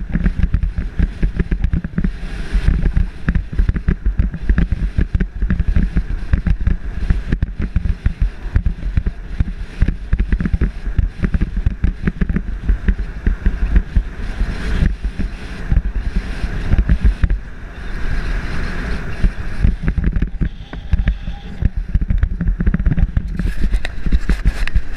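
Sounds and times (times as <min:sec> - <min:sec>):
motorcycle engine running: 0:00.0 - 0:24.9
wind buffeting on microphone: 0:00.0 - 0:24.9.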